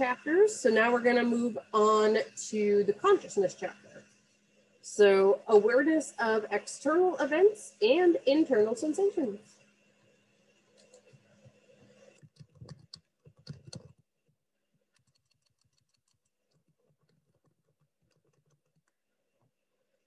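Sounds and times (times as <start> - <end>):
computer keyboard typing: 10.8 - 11.2, 12.2 - 14.0, 14.9 - 19.0.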